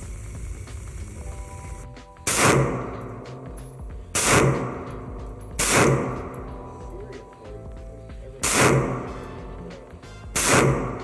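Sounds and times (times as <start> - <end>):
pistol shots with reverberant tail: 2.2 - 3.5, 4.1 - 6.5, 8.4 - 9.3, 10.3 - 11.0.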